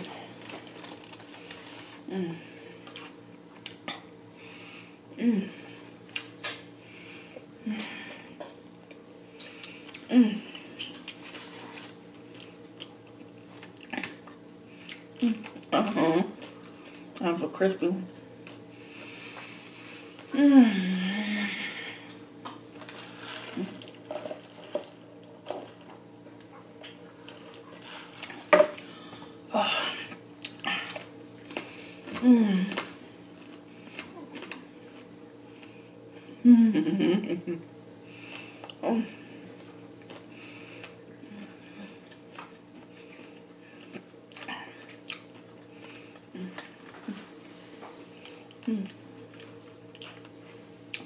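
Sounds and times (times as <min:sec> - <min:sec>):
chewing crispy fries: 0:00.0 - 0:02.1, 0:10.8 - 0:17.2, 0:30.1 - 0:35.7, 0:42.0 - 0:47.2, 0:48.1 - 0:51.0.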